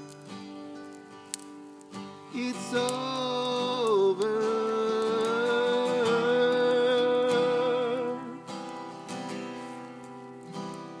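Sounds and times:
acoustic guitars strumming: 0.0s - 11.0s
man singing: 2.3s - 8.7s.

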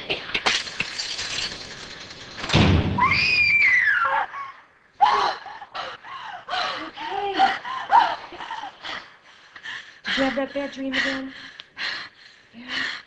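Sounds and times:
woman screaming: 3.0s - 5.6s.

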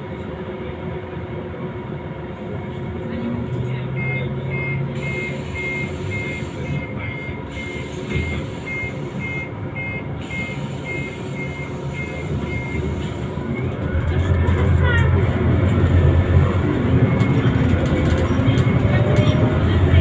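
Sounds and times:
bus engine low hum: 0.0s - 20.0s
electronic beeper short beeps: 4.0s - 13.7s.

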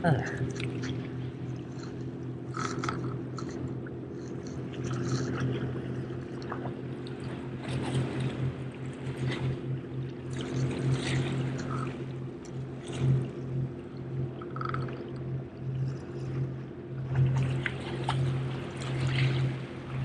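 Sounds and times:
waves lapping against rocks: 0.0s - 12.1s, 17.1s - 20.0s
motorboat engine drone: 0.0s - 20.0s.

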